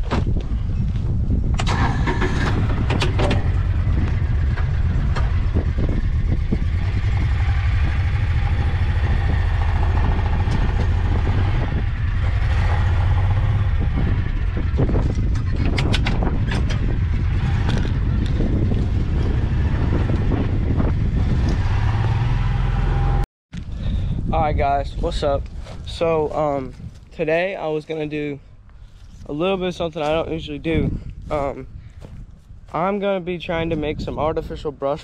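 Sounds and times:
utility vehicle engine running: 0:01.5 - 0:23.2
rattles and knocks: 0:01.6 - 0:19.6.

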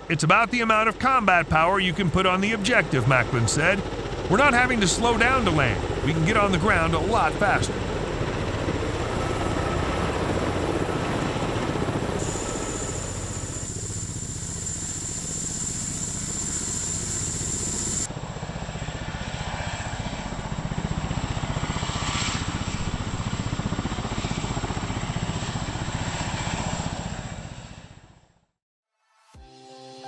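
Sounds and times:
helicopter rotors chopping: 0:00.1 - 0:27.3
high steady whine: 0:11.8 - 0:18.1.

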